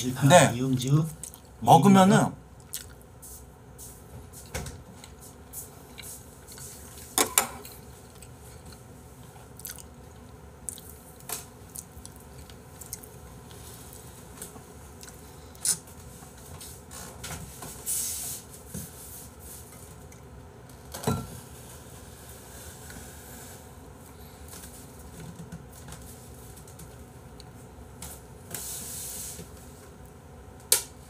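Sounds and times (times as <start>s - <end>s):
mouth sounds of eating: 1.1s - 1.6s, 2.6s - 3.1s, 9.5s - 13.2s
short hissing sounds: 17.8s - 18.5s.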